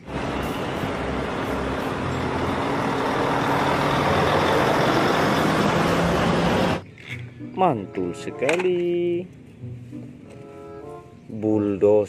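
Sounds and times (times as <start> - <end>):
diesel truck engines droning: 0.0 - 8.0.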